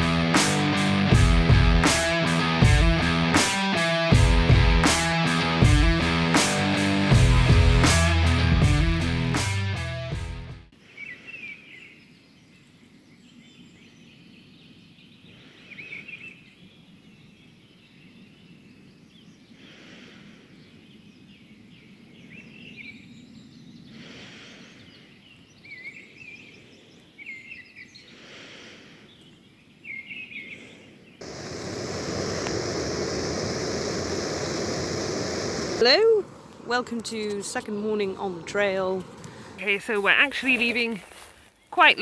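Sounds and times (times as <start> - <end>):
heavy breathing: 23.9 - 24.9, 28.0 - 29.2, 39.0 - 39.6
steady rushing noise: 31.2 - 40.7.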